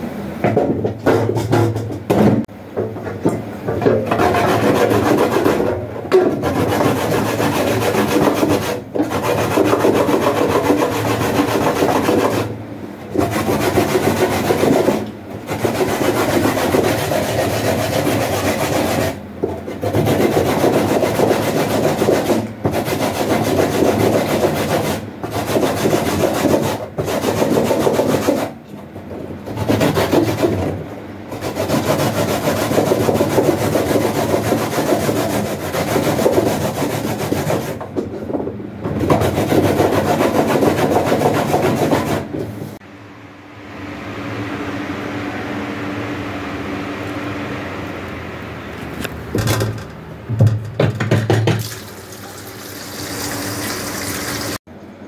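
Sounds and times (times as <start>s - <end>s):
coconut rasping on metal grater: 4.1s - 28.6s, 29.5s - 37.8s, 39.0s - 42.3s.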